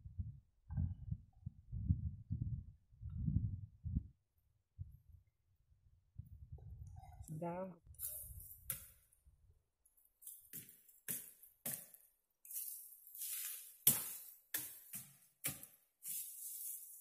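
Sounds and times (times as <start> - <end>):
leaves rustling: 8.0 - 8.8, 12.4 - 15.0, 16.0 - 17.0.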